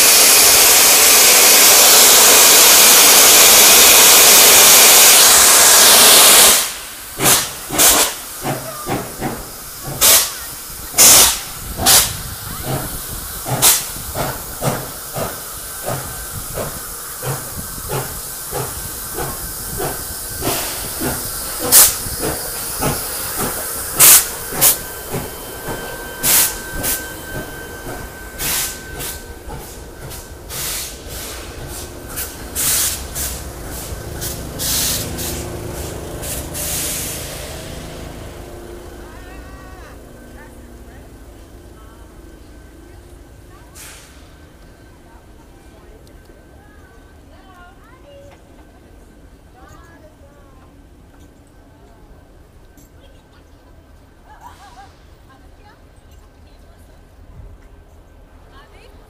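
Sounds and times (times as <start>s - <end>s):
steam hissing from cylinder cocks: 0.0s - 40.4s, 41.2s - 45.5s
steam locomotive exhaust chuffs: 0.0s - 46.5s.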